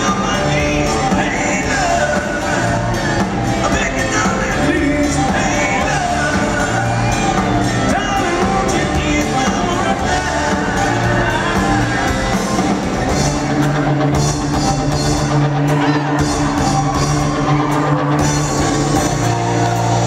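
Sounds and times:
person singing: 0.0s - 13.4s
crowd shouting and whooping: 0.0s - 20.0s
live rock band playing: 0.0s - 20.0s.

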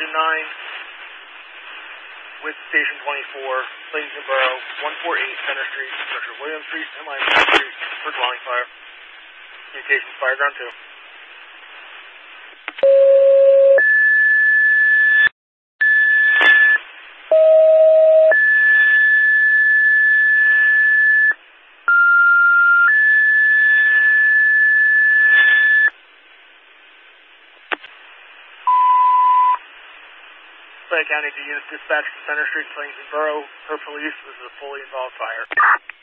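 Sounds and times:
radio click: 27.6s - 28.0s, 35.4s - 36.0s.

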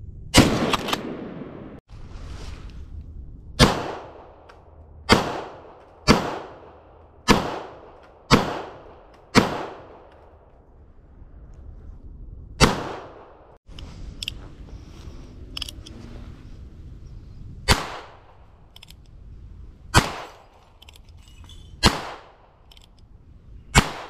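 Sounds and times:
pistol shots: 3.6s - 4.5s, 5.1s - 10.3s, 12.6s - 13.5s, 17.7s - 18.3s, 19.9s - 20.6s, 21.8s - 22.6s, 23.7s - 24.0s.

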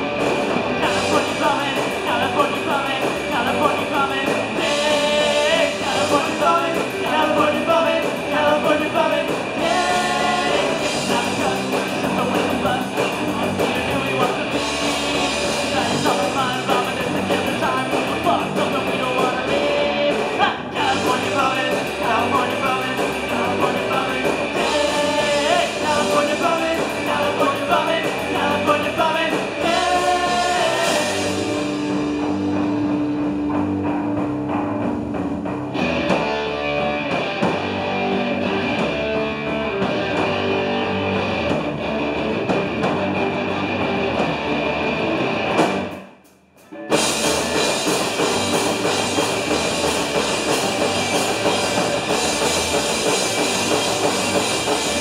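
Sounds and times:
punk rock band playing live: 0.0s - 55.0s
shouted singing: 0.8s - 14.5s, 15.7s - 31.6s.

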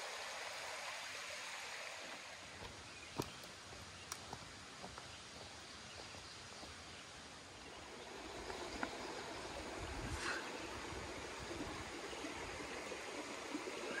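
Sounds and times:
stream rushing over rocks: 0.0s - 4.9s, 7.7s - 14.0s.

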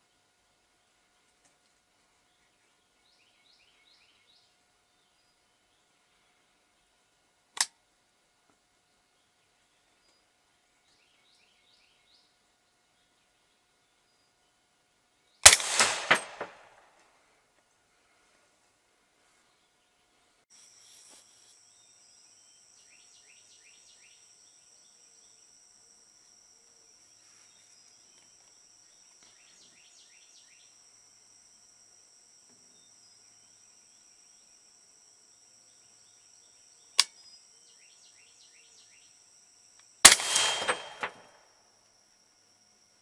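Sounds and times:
rifle shot: 15.4s - 16.8s, 40.0s - 41.4s
sharp click: 15.5s - 16.7s, 37.0s - 37.2s, 40.1s - 41.3s
high insect drone: 20.5s - 43.0s.

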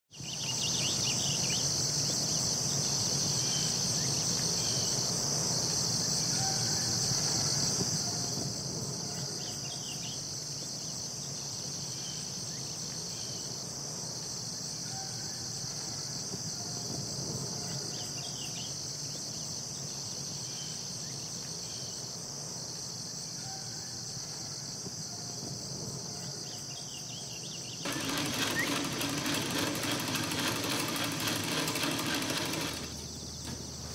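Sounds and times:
insects chirring: 0.1s - 33.9s
faint bird chirps: 14.8s - 16.8s, 23.4s - 25.4s
small machine whirring: 27.8s - 33.9s.

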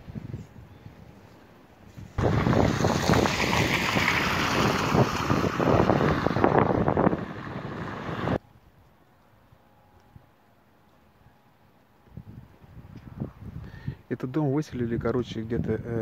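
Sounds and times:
wind buffeting microphone: 0.0s - 1.2s, 1.9s - 8.4s, 12.1s - 14.1s, 14.7s - 16.0s.

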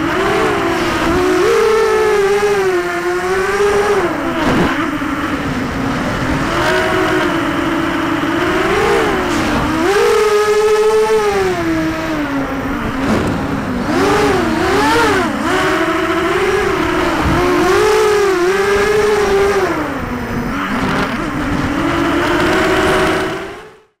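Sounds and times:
quadcopter motors whining: 0.0s - 23.9s
wind rush on microphone: 3.6s - 23.3s.

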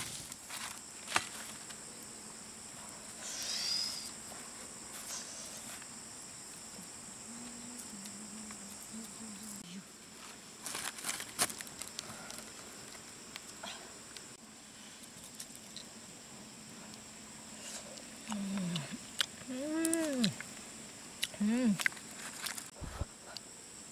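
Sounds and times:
high-pitched insect drone: 1.8s - 9.9s.

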